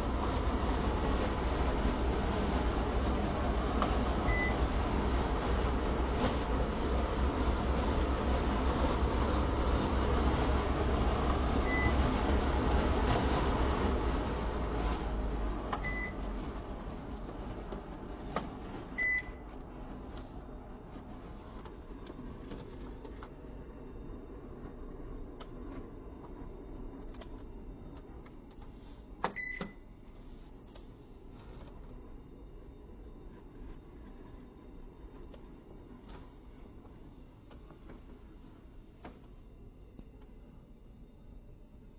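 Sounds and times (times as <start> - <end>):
air purifier fan running: 0.0 - 41.9
short control panel beeps: 29.4 - 29.8.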